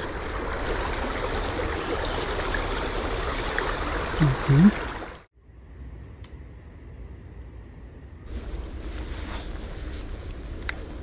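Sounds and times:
stream water running: 0.0 - 5.3.

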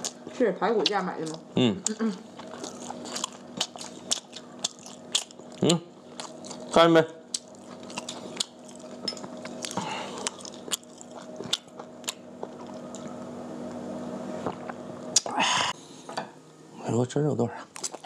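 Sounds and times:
steady low hum: 0.0 - 18.0
people sipping and swallowing: 14.4 - 15.7.

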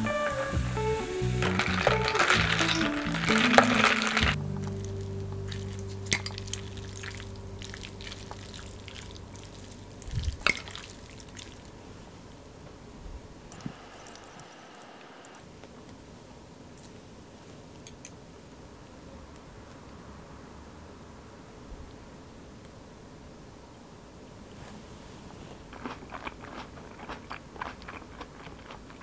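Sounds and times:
sparkling water fizzing over ice: 0.8 - 4.4, 5.5 - 11.7, 13.5 - 15.4
metal utensils clinking on glass: 1.4 - 4.4.

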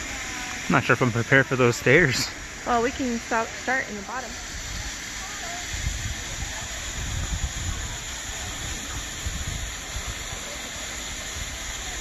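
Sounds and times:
wind buffeting microphone: 4.4 - 12.0.

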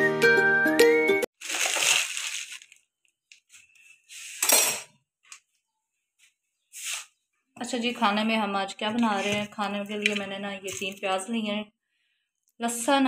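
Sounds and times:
background music: 0.0 - 1.3.

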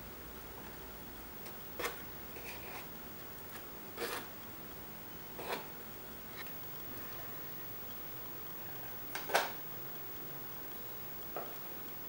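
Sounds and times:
wooden spoon scraping mousse: 4.0 - 4.4.

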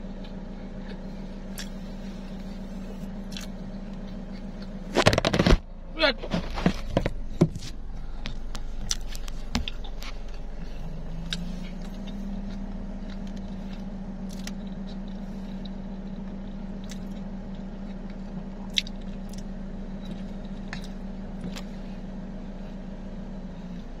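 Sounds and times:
chewing rice: 0.0 - 4.9, 7.6 - 21.8
car hum inside cabin: 0.0 - 24.0.

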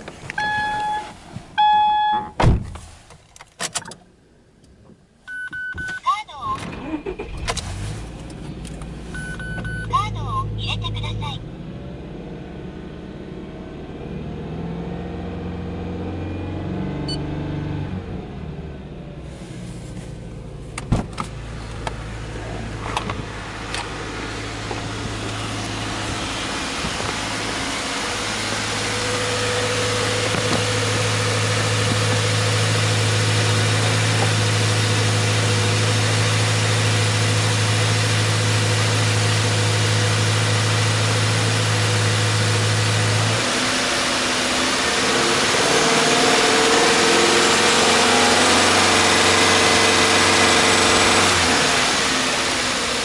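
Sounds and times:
car door opening: 0.0 - 4.1, 20.7 - 22.0, 28.4 - 32.3.

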